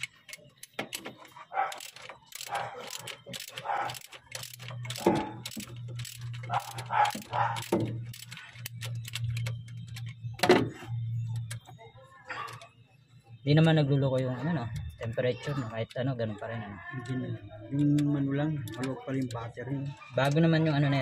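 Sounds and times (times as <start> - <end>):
ratchet wrench clicking: 0.0 - 10.2.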